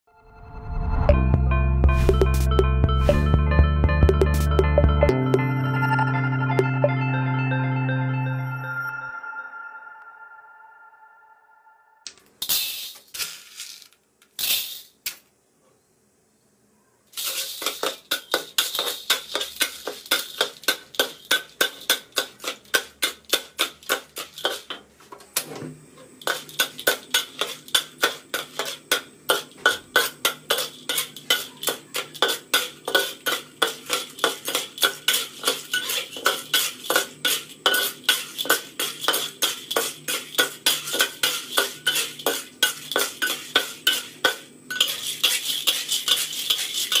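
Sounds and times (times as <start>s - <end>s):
metal spatula scraping wok: 17.2s - 24.9s, 25.5s - 47.0s.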